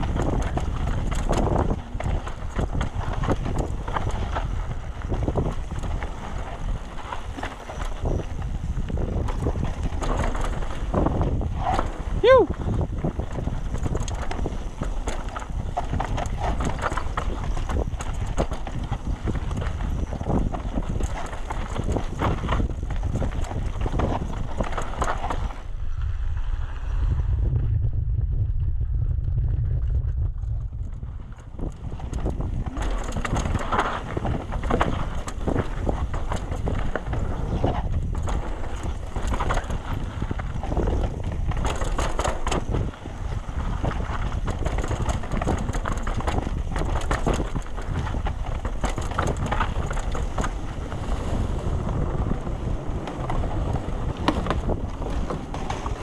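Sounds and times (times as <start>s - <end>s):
wind on microphone: 0.0s - 56.0s.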